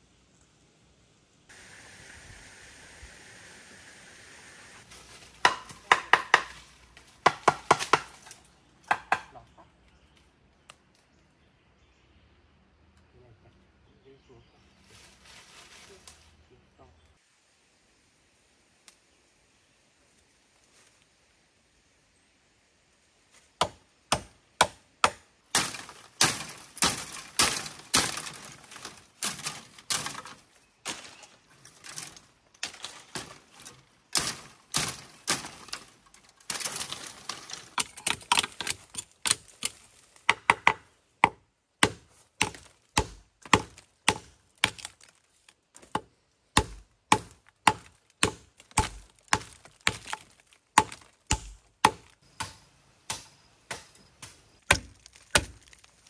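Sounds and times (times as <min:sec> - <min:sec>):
machete chopping bamboo: 0:05.3 - 0:09.4, 0:23.6 - 0:31.1, 0:31.9 - 0:35.9, 0:36.5 - 0:45.2, 0:45.8 - 0:56.0.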